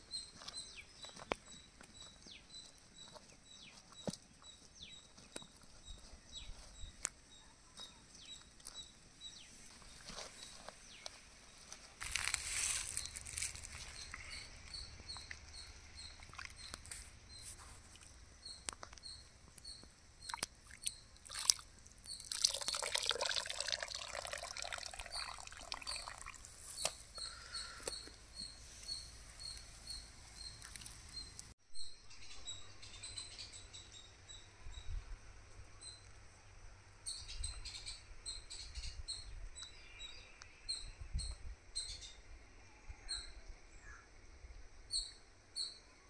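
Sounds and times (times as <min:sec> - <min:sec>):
feathers rustling and tearing: 0:12.0 - 0:14.0
bird chirping: 0:12.0 - 0:21.2, 0:23.6 - 0:35.0, 0:35.6 - 0:44.1.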